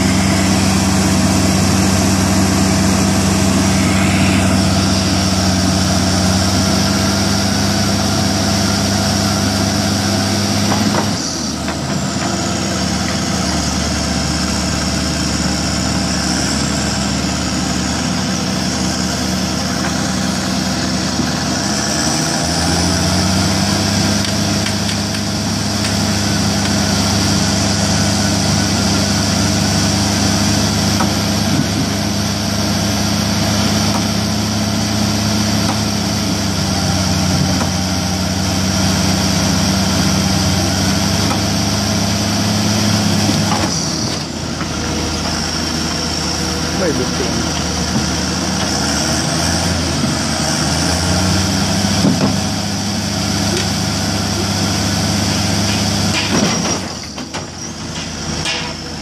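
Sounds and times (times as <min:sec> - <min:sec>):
steady high whine: 0:00.0 - 0:10.2
heavy diesel engines running: 0:00.0 - 0:59.0.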